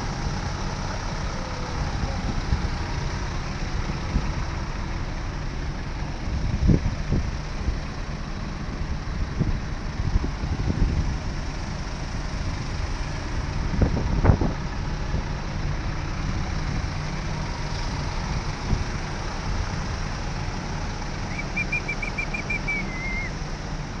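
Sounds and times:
diesel machinery idling: 0.0s - 24.0s
bird chirping: 21.3s - 23.4s.

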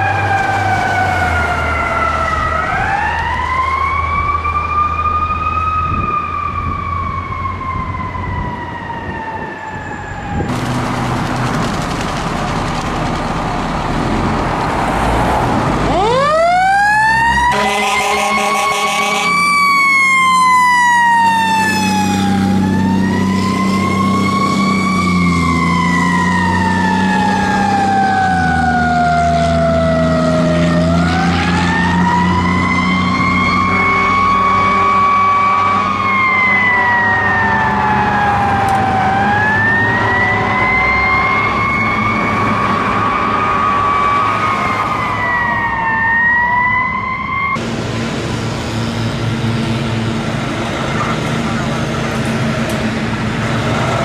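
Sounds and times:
fire truck sirens wailing: 0.0s - 54.0s
diesel engine running: 10.5s - 16.4s, 47.6s - 54.0s
short horn blasts: 17.5s - 19.4s.

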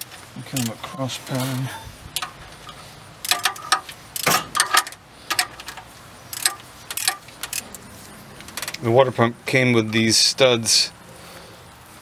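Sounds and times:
socket ratchet clicking: 3.2s - 7.7s.

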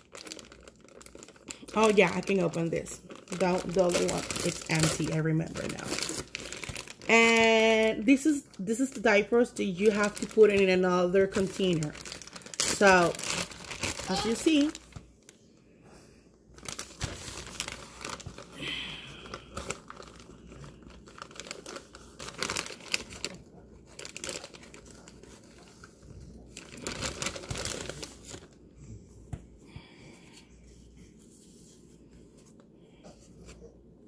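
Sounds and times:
plastic pack ripping open: 0.0s - 8.0s, 9.7s - 15.3s, 16.6s - 28.6s
plastic wrapper crinkling: 0.0s - 15.4s, 16.5s - 28.7s.

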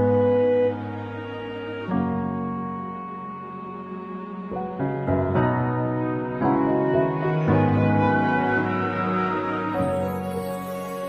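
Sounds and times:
instrumental music with held chords: 0.0s - 11.0s.

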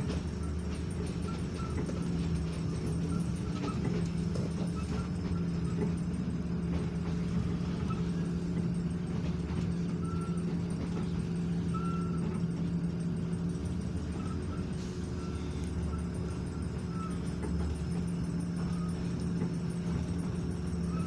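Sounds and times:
train engine drone: 0.0s - 21.0s
faint high squeaks: 7.0s - 21.0s.

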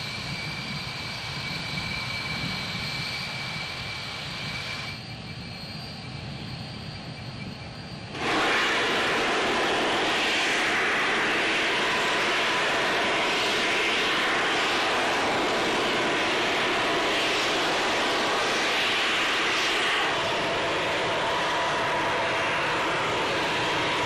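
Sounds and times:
rocket venting gas hiss: 8.1s - 24.0s.

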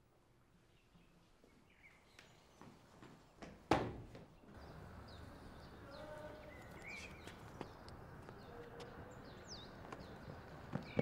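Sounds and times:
bird-like chirps: 4.4s - 11.0s.

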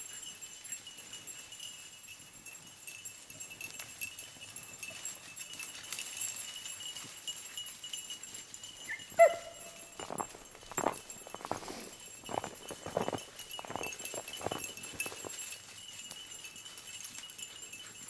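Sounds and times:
dog barking: 9.2s - 9.7s.

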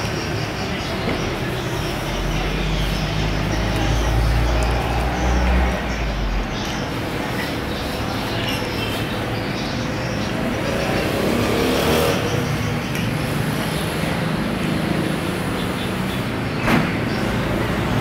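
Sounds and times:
road traffic: 0.0s - 18.0s
vehicle passing: 1.8s - 7.2s, 10.3s - 16.1s.

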